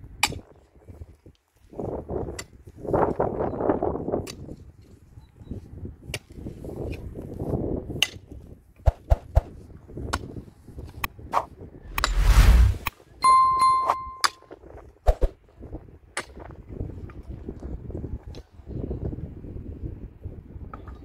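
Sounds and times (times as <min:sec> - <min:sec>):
metal tool scraping soil: 0:11.9 - 0:12.9.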